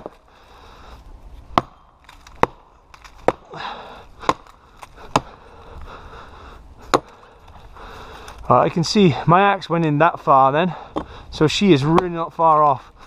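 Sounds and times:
axe chopping into a tree: 1.5s - 5.4s, 6.8s - 7.2s, 11.9s - 12.2s.

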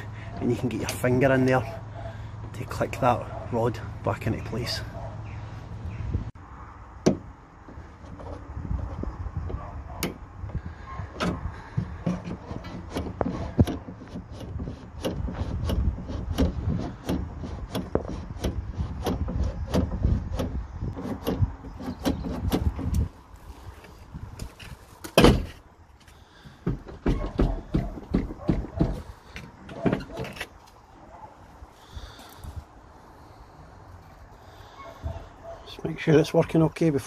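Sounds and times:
tailgate handle clack: 26.7s - 30.5s.

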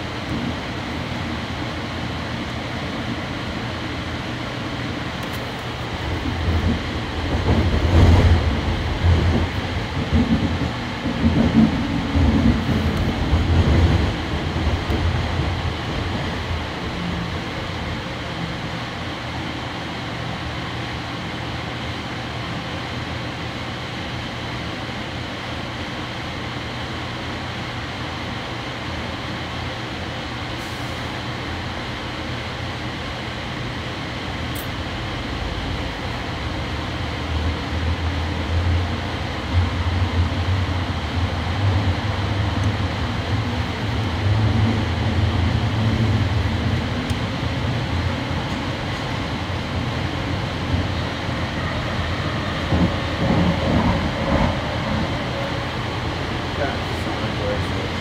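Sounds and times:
train knocks: 0.0s - 1.0s, 5.2s - 18.2s, 39.5s - 58.0s
train rumbling from inside: 0.0s - 58.0s.

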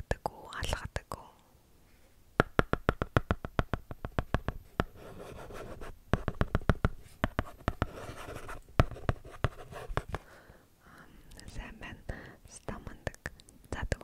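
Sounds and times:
stylus tapping on tablet: 2.4s - 10.2s.

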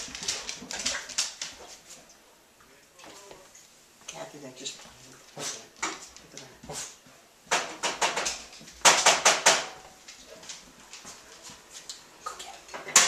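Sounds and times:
dog claws scrabbling on wooden floor: 0.0s - 2.0s.

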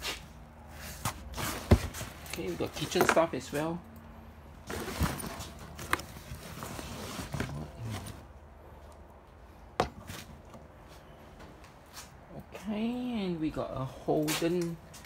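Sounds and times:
bags and cardboard rustling: 4.6s - 8.3s.

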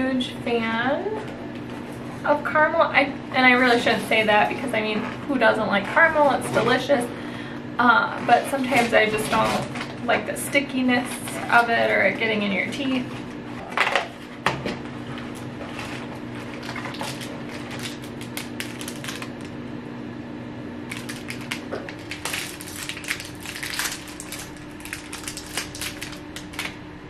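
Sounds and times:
plastic wrapper crinkling: 15.4s - 19.6s, 20.9s - 26.8s.

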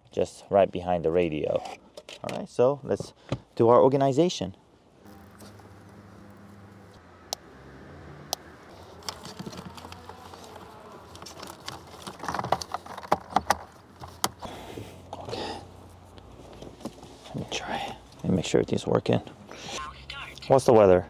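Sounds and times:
wiring harnesses rustling: 8.5s - 18.4s.

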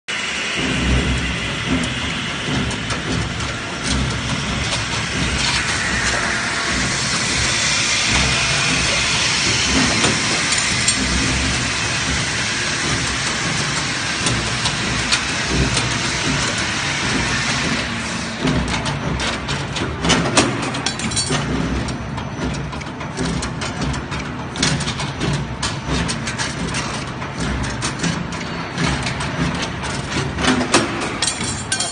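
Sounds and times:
rod bending machine running: 0.1s - 31.9s
sharp clicks and knocks: 0.6s - 31.9s.

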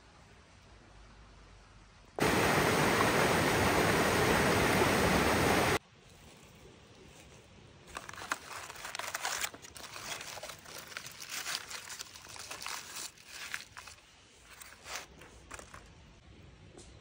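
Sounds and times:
aluminium foil crinkling: 7.1s - 16.1s.

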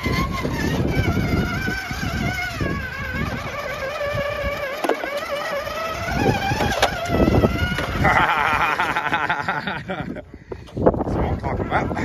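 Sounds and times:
electric motor whining: 0.0s - 9.5s.

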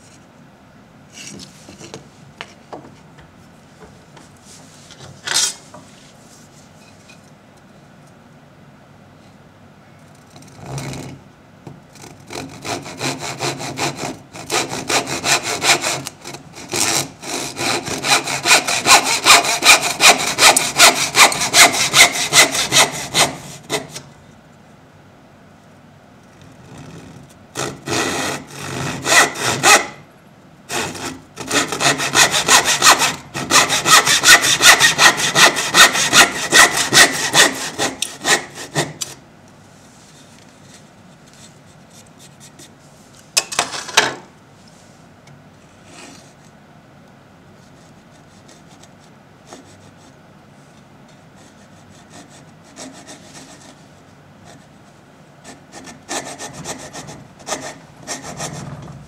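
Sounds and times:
loud short scrape: 4.7s - 5.7s
back saw cutting wood: 12.3s - 24.0s, 27.6s - 30.0s, 30.7s - 39.2s, 55.7s - 58.8s.

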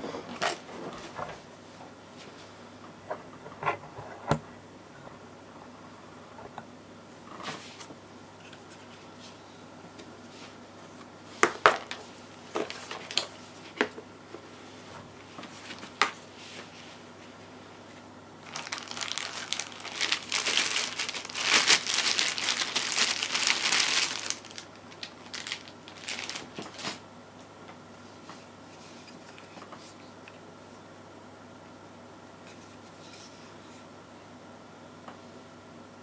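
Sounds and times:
plastic bag crinkling: 11.7s - 13.3s, 18.4s - 27.0s.

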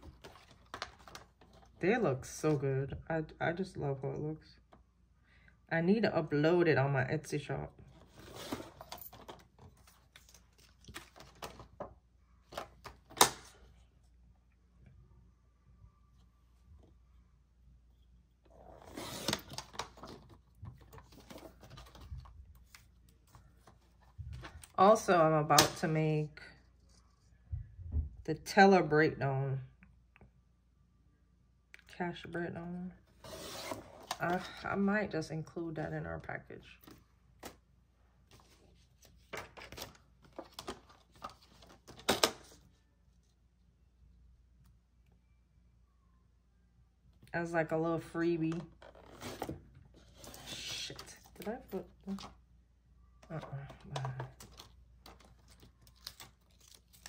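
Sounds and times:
plastic cards rustling and clicking: 0.0s - 1.8s, 8.0s - 13.7s, 18.8s - 24.8s, 38.3s - 42.6s, 53.2s - 57.0s.

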